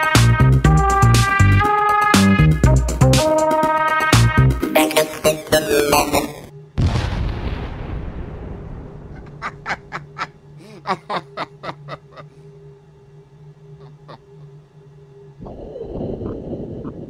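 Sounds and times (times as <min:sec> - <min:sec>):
low electric hum: 0:06.5 - 0:17.0.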